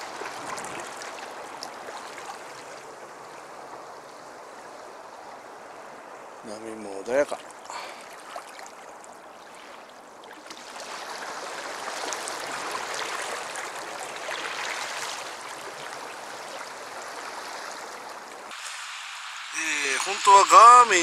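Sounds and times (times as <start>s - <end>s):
sea waves washing against rocks: 10.6s - 21.0s.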